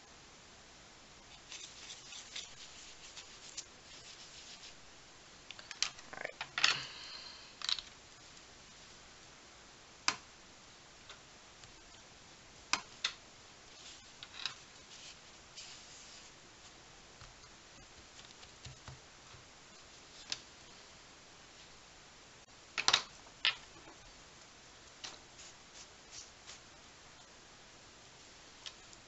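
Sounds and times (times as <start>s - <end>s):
brush and pencil scratching paper: 1.3s - 4.8s, 13.7s - 16.4s.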